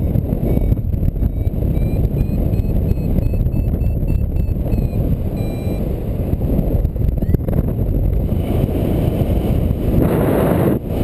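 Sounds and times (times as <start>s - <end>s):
wind buffeting microphone: 0.0s - 11.0s
faint short beeps: 1.3s - 5.9s.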